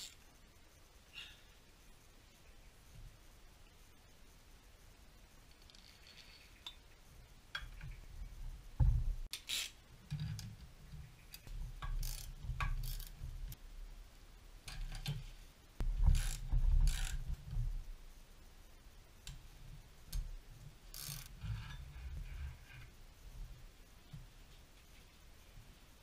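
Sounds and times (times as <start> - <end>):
ratchet wrench clicking: 9.3 - 9.8, 11.8 - 13.2, 20.9 - 21.3.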